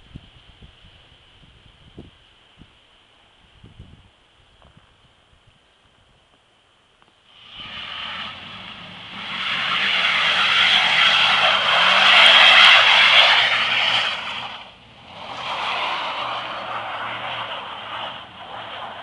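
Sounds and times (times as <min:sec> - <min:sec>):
rush of noise: 0:07.3 - 0:19.0
truck engine: 0:07.3 - 0:19.0
tyres hissing through snow: 0:07.3 - 0:19.0.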